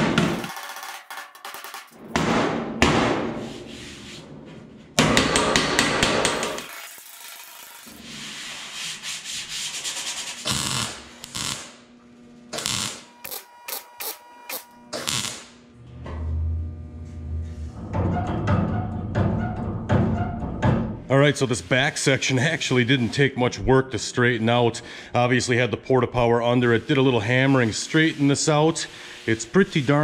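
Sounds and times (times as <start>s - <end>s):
welding crackle: 0.3s - 2.0s, 6.6s - 8.0s, 10.5s - 11.8s, 12.5s - 15.6s.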